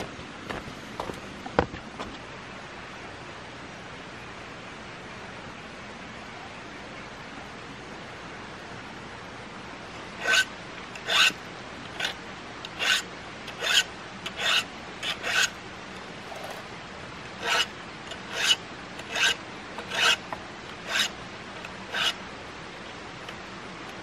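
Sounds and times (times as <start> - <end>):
hand tool rasping on wood: 10.2 - 15.6, 17.4 - 20.2, 20.8 - 21.2, 21.9 - 22.2.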